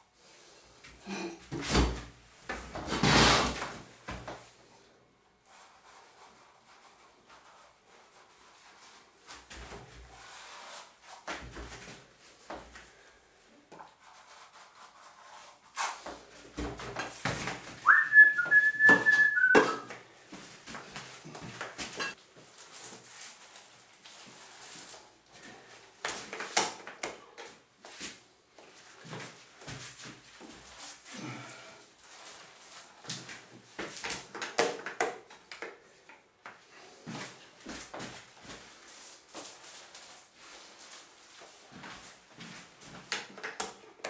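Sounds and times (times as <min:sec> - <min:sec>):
whistled note sliding up: 0:17.9 - 0:19.9.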